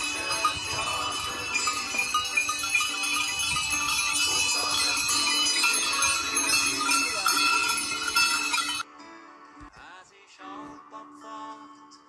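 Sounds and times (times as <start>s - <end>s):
goat bells jangling: 0.0s - 8.8s.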